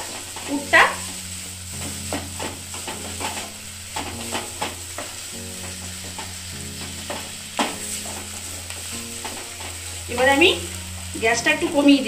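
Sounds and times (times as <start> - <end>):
wooden spatula scraping pan: 0.0 - 10.5
low frying sizzle: 0.0 - 12.0.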